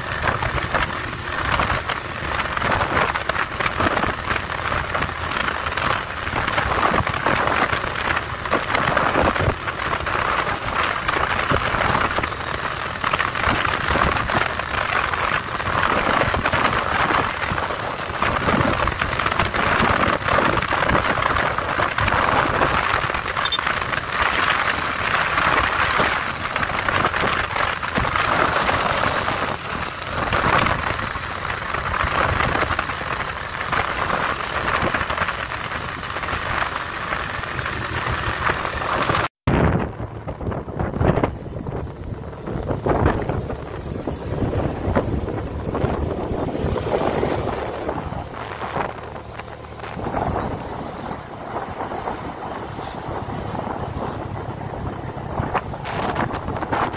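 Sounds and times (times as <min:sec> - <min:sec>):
motorcycle engine running: 0:00.0 - 0:56.9
wind and road noise: 0:00.0 - 0:56.9.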